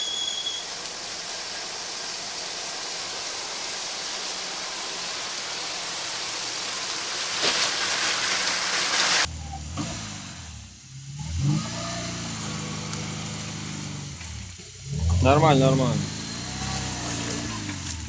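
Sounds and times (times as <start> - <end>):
water sloshing and hissing: 0.6 - 9.3
faint vehicle engine: 0.7 - 18.0.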